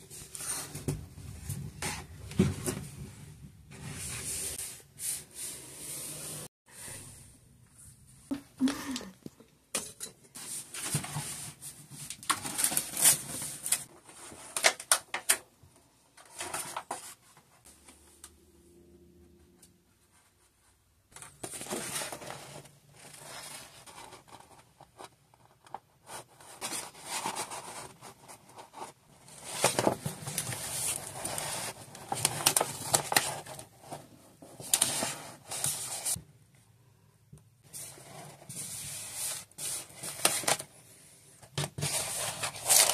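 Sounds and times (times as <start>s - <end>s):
wallpaper rustling and scraping: 0.0s - 7.0s, 10.4s - 14.8s, 20.0s - 25.1s, 26.1s - 36.2s, 37.6s - 42.9s.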